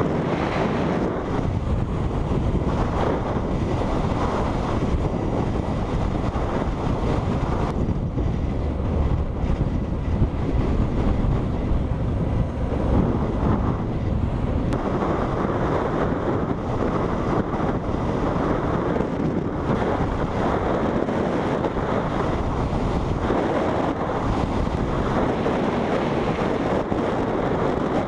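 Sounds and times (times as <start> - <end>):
motorcycle engine and tyre noise: 0.0 - 28.0
wind rushing over microphone: 0.0 - 28.0.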